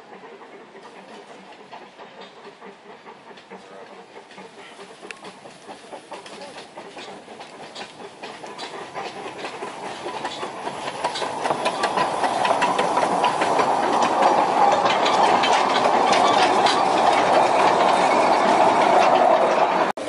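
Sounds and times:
train wheels clicking on rail joints: 0:00.0 - 0:20.0.

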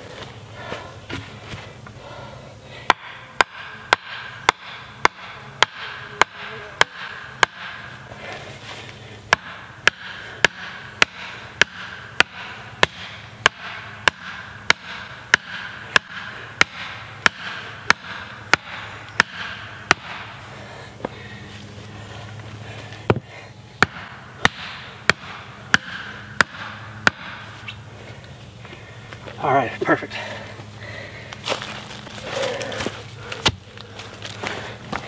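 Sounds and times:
post being pounded: 0:02.9 - 0:08.1, 0:09.3 - 0:20.4, 0:23.1 - 0:27.8.

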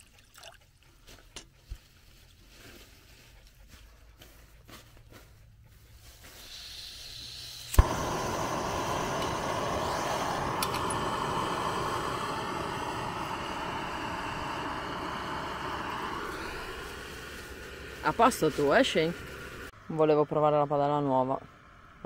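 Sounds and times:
stove flame burning: 0:06.0 - 0:19.8
gas hissing: 0:06.2 - 0:19.8
burner ignition click: 0:07.5 - 0:19.7.

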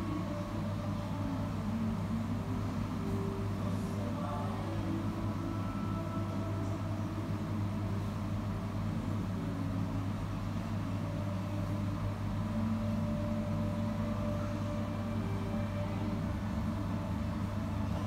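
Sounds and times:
kitchen machinery hum: 0:00.0 - 0:18.0.

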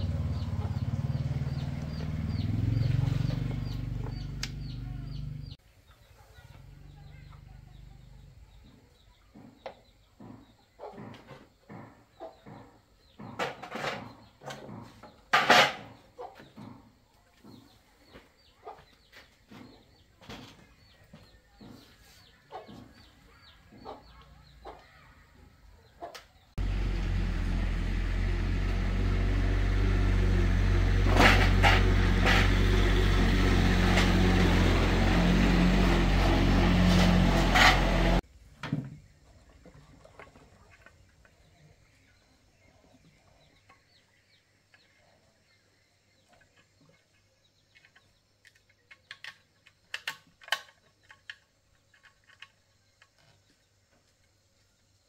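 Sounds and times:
brush-cutter engine running: 0:26.6 - 0:38.2.

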